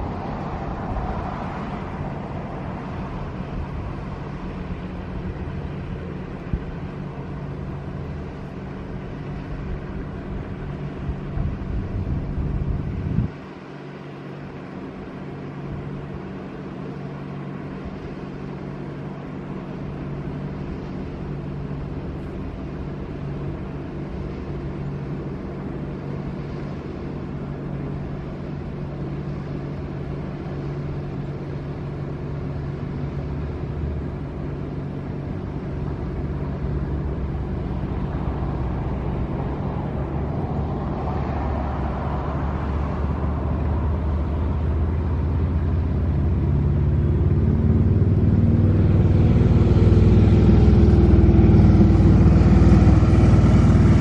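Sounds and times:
engine droning hum: 0.0s - 54.0s
deep rumble: 32.6s - 54.0s.

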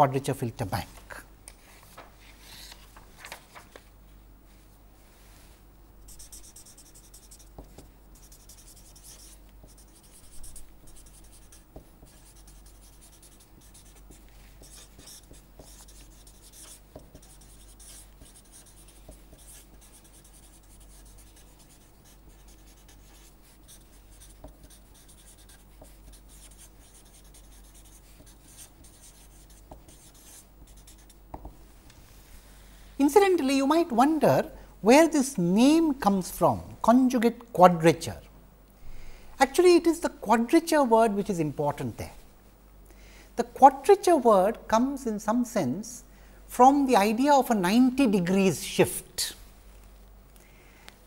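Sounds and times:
faint low hum: 0.0s - 51.0s
marker scratching on paper: 6.1s - 31.2s.

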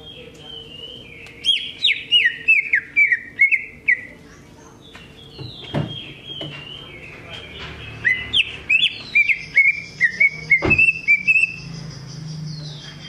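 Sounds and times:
bird singing whistled notes: 0.0s - 4.2s, 4.9s - 13.0s
dull knock: 5.4s - 6.6s.

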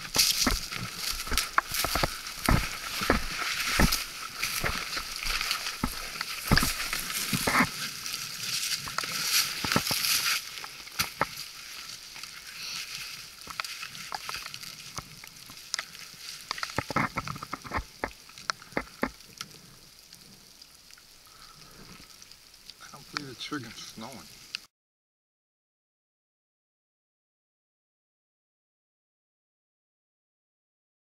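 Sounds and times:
twigs brushing past: 0.0s - 15.0s
footsteps crunching through dry brush: 0.0s - 19.2s.

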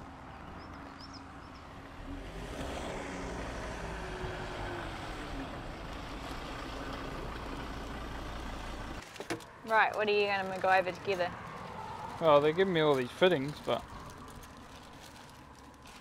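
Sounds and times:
vehicle engine running: 3.0s - 9.0s.

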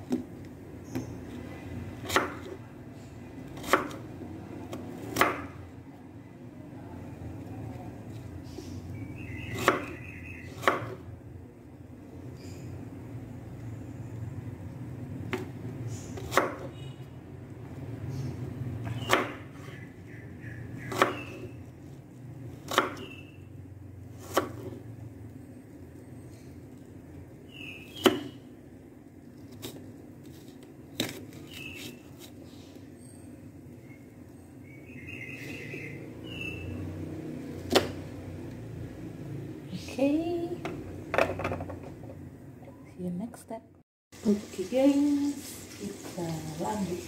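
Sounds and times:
knife chopping on wooden board: 2.0s - 2.6s, 3.6s - 4.0s, 5.1s - 5.5s, 9.5s - 11.0s, 16.2s - 16.7s, 18.8s - 19.4s, 20.9s - 21.5s, 22.6s - 23.1s, 24.2s - 24.8s.

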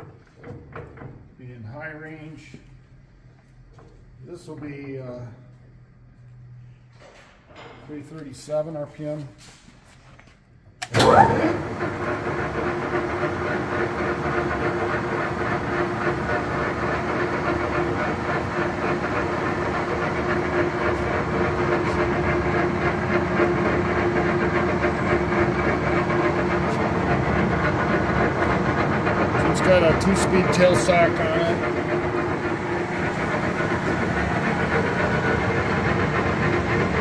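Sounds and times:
lathe whirring and humming: 10.9s - 37.0s.

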